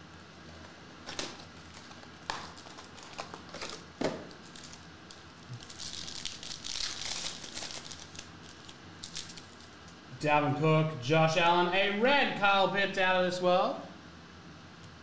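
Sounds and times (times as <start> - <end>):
foil wrapper tearing and crinkling: 0.5 - 9.9.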